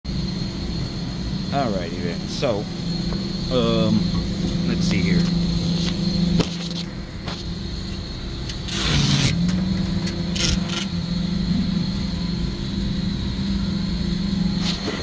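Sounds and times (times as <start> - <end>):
refrigeration machinery hum: 0.0 - 15.0.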